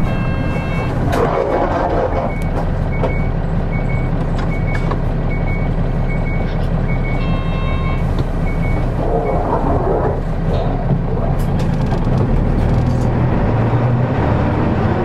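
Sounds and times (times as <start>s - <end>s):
short electronic beeps: 0.0s - 1.0s, 2.1s - 8.8s
bus diesel engine running: 0.0s - 15.0s.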